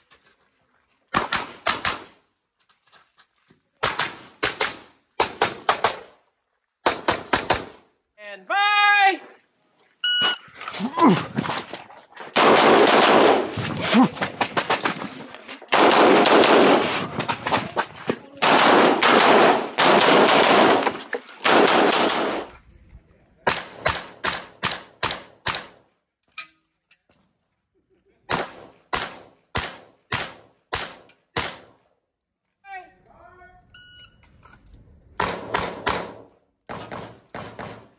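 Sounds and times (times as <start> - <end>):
pistol shots: 12.4 - 13.6, 15.7 - 17.1, 18.4 - 22.5, 35.2 - 37.9.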